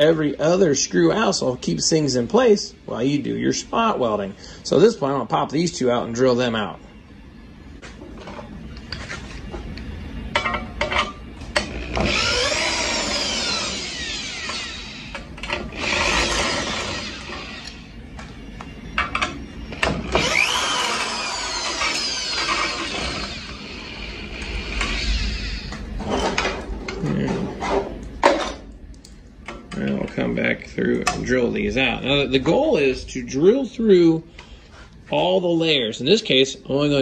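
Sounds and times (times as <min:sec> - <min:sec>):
cordless drill whining: 0:11.6 - 0:17.9, 0:19.7 - 0:25.9.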